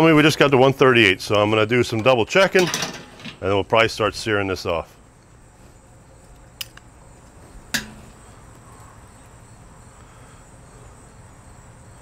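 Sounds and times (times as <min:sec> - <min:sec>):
sharp click with low ringing: 0:07.7 - 0:08.1.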